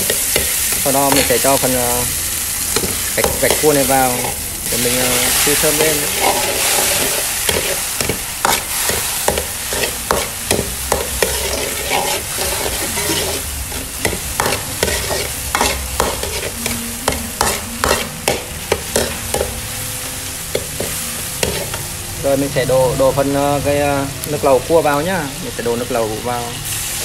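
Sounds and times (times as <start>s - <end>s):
food sizzling in hot oil: 0.0s - 27.0s
metal ladle scraping a wok: 2.7s - 19.4s.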